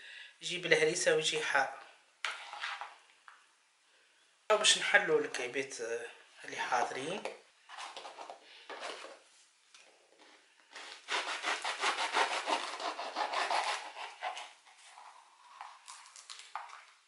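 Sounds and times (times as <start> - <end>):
knife sawing through crusty bread: 10.8 - 15.0.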